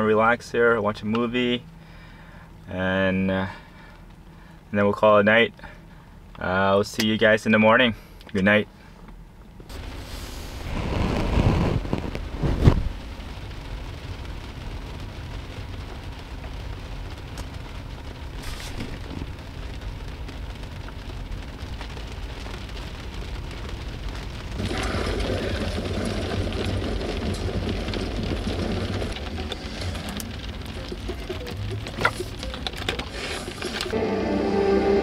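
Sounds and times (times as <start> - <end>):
rain on a car roof: 0.0 - 35.0
film sound from a screen: 9.7 - 35.0.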